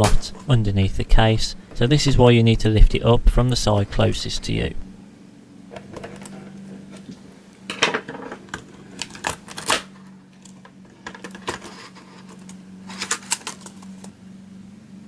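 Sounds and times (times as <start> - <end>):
keyboard rattling in case: 10.4 - 14.1.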